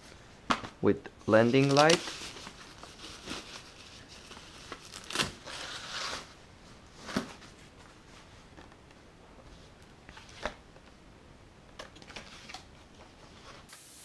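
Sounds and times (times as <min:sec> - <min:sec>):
plastic wrap and paper crinkling: 0:01.3 - 0:07.7.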